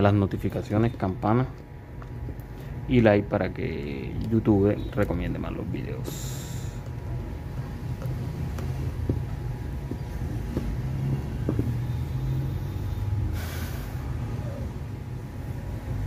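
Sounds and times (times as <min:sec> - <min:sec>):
steady low rumble: 0:05.1 - 0:16.0
short hisses: 0:12.5 - 0:14.1.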